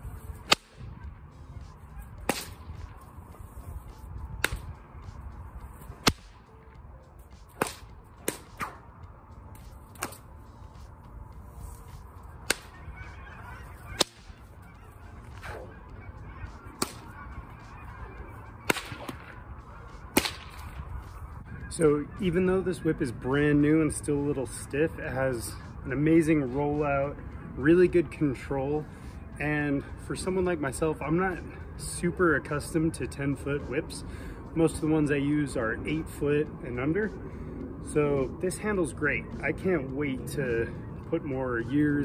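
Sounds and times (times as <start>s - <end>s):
bullwhip cracks: 0.4s - 0.9s, 2.2s - 3.0s, 4.4s - 4.7s, 5.9s - 6.5s, 7.4s - 8.9s, 9.6s - 10.3s, 12.4s - 12.8s, 14.0s - 14.4s, 16.7s - 17.1s, 18.6s - 19.4s, 20.1s - 20.8s.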